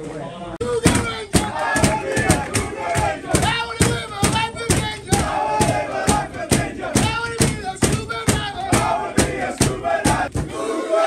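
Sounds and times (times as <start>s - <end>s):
group chanting: 0.6s - 11.0s
loud hand claps: 0.8s - 10.5s.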